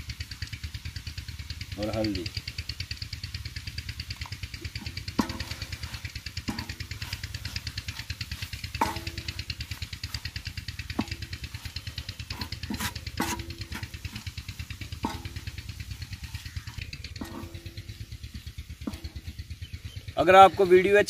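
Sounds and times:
steady fast pulsing hum: 0.0s - 21.0s
wooden spoon scraping griddle: 4.6s - 19.8s.

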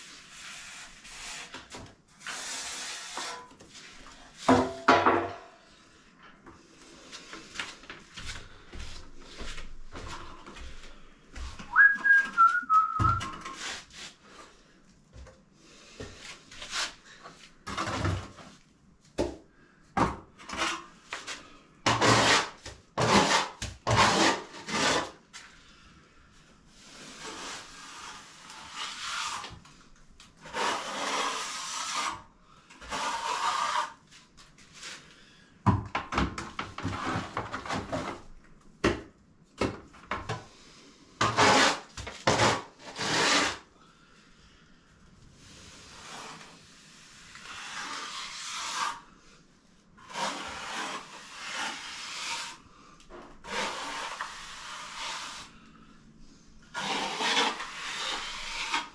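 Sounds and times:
straight edge scraping cement: 0.0s - 4.5s, 20.4s - 25.2s, 26.8s - 29.6s, 30.4s - 34.1s, 41.2s - 43.6s, 45.6s - 49.1s, 50.0s - 52.6s, 53.4s - 55.5s, 56.7s - 58.9s.

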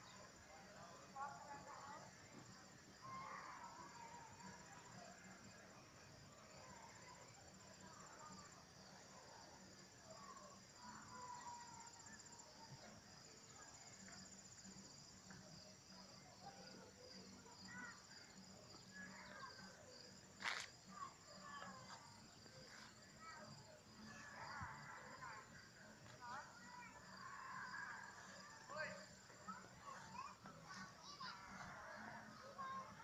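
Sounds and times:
insects trilling: 26.6s - 29.6s.

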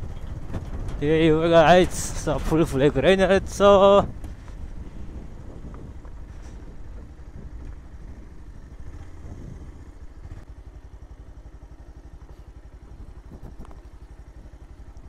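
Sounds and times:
motorcycle engine putter: 11.4s - 15.0s.

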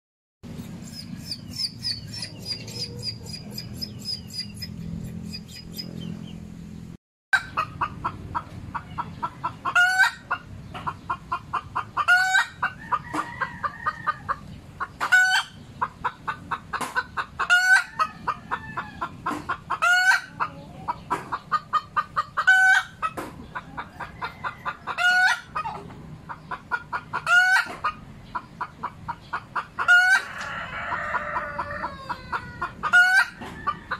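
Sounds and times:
high rapid chirping: 0.5s - 6.4s
hen cackling: 0.7s - 6.3s, 7.4s - 33.9s.

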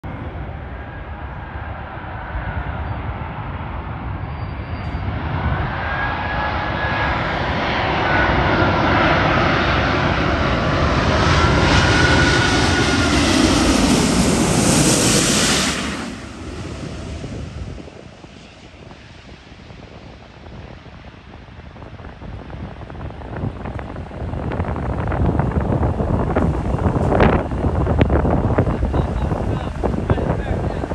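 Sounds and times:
jet airliner engines roaring: 0.0s - 30.9s
whining fan tones: 21.4s - 30.9s.

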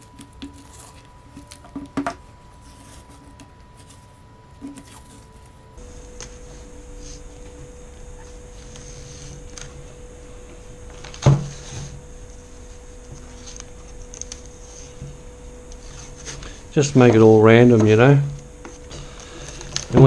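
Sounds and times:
light handling rubs: 0.0s - 7.3s
faint steady hum: 0.0s - 20.0s.

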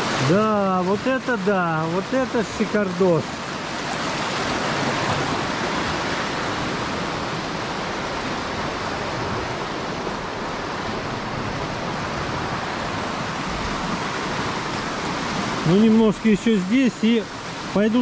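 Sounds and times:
river water rushing: 0.0s - 18.0s.

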